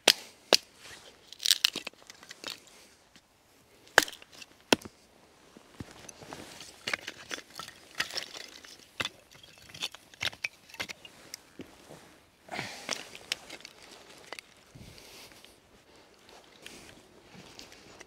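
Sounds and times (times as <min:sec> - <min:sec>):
wood cracking and snapping: 0:01.3 - 0:02.6.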